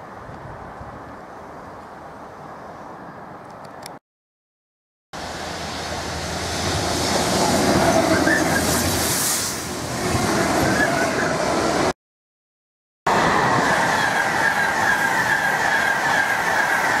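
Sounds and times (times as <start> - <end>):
freight train passing: 5.2 - 11.9, 13.1 - 17.0
wheel squeals: 7.8 - 8.9.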